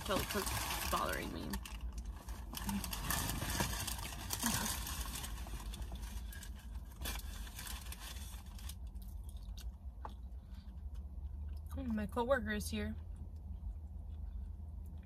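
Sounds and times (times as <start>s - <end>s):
rustling of clothing or wrappers: 0.0s - 9.7s.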